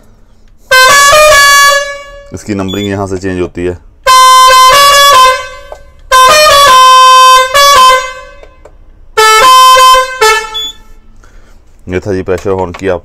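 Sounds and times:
musical truck horn melody: 0.6 - 2.5, 4.0 - 8.6, 9.2 - 11.2.

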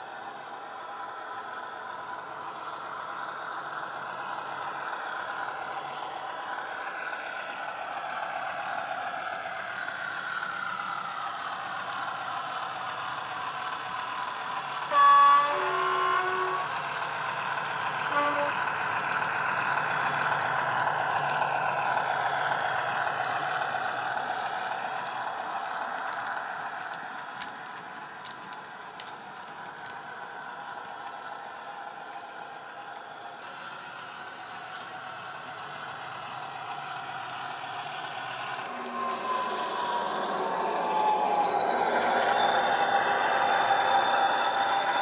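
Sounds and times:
diesel engine: 0.0 - 45.0
two-tone train horn: 14.9 - 16.9, 18.0 - 18.9.

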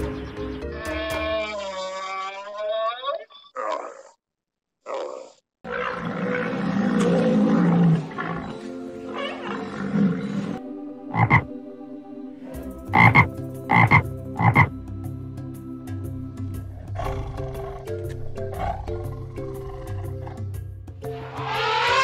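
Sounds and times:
soft background music: 0.0 - 1.5, 6.6 - 22.0
low animal call: 4.9 - 11.5, 21.2 - 22.0
tree frog croaking: 8.3 - 11.5, 12.9 - 14.8.

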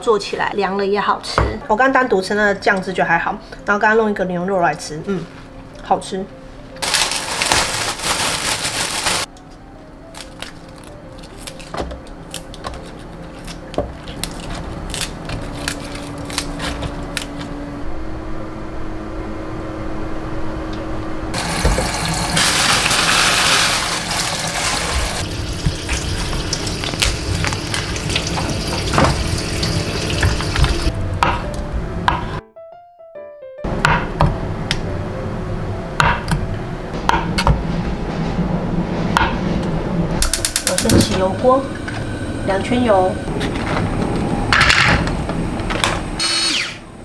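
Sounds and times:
leaves and plastic rustling: 6.8 - 9.3, 10.1 - 17.5, 22.4 - 28.7
low steady hum: 9.3 - 22.5, 34.1 - 46.2
tap running into sink: 21.4 - 22.2, 25.5 - 30.9.

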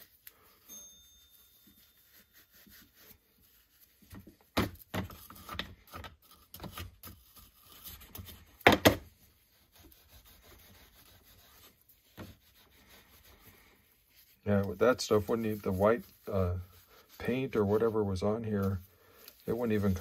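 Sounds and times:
wire brush scrubbing metal: 9.4 - 20.0.

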